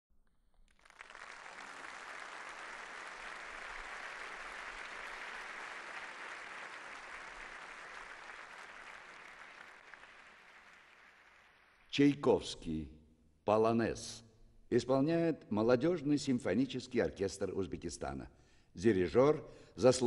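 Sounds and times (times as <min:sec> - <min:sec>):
audience applauding: 0:00.6 - 0:12.0.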